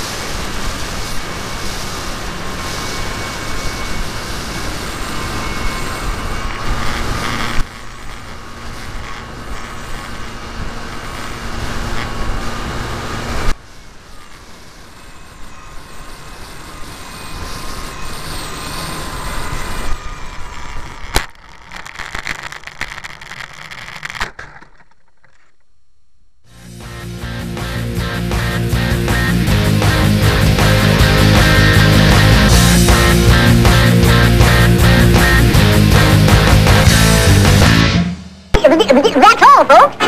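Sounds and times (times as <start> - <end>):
faint motor whine: 0.0 - 27.6.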